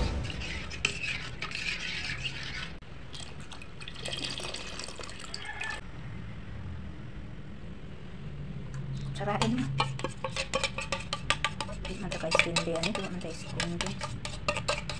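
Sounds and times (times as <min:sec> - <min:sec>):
spoon stirring in steel pot: 0:00.0 - 0:03.5, 0:09.0 - 0:14.9
liquid pouring into pot: 0:03.1 - 0:05.8.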